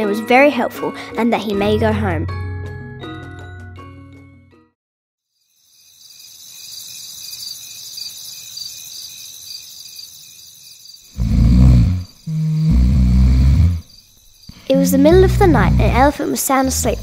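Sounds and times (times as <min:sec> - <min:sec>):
crickets chirping: 0:05.3 - 0:17.0.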